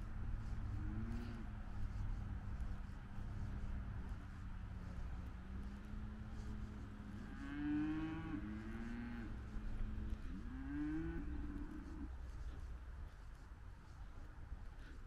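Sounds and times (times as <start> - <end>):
steady low hum: 0.0 - 15.0
farm animal calling: 6.3 - 12.6.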